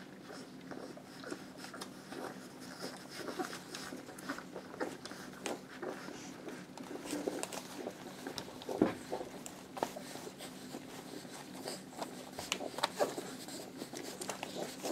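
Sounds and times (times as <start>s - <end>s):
puppies suckling smacking: 0.0s - 14.9s.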